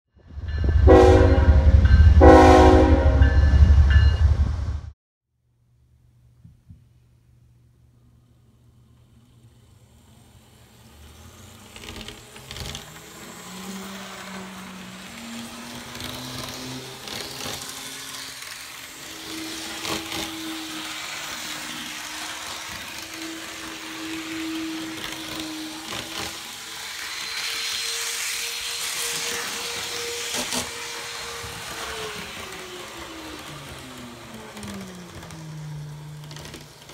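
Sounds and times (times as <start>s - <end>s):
small electric motor whining: 9.0s - 36.9s
wheels rattling on rail: 9.0s - 36.9s.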